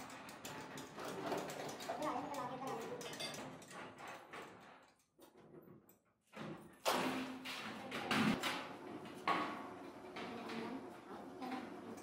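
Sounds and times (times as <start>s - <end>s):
metallic clatter with ringing: 0.0s - 4.9s.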